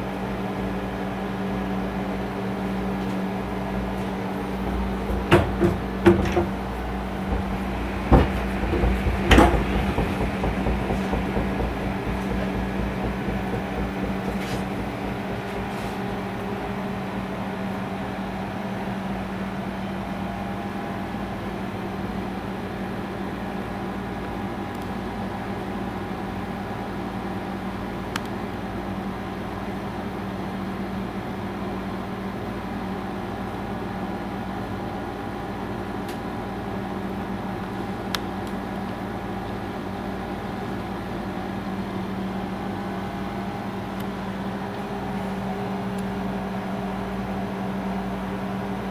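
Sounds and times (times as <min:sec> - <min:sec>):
honey extractor motor hum: 0:00.1 - 0:22.0.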